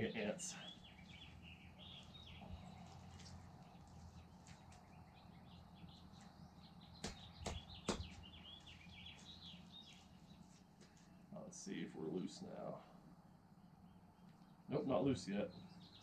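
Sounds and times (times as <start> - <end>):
small birds chirping: 0.0 - 16.0
short knocks: 7.0 - 8.2.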